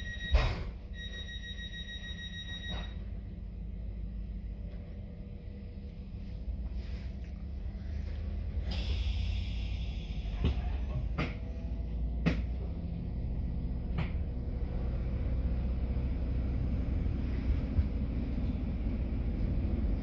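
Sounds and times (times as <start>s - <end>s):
diesel train engine rumbling: 2.0s - 20.0s
train hiss: 8.6s - 10.6s.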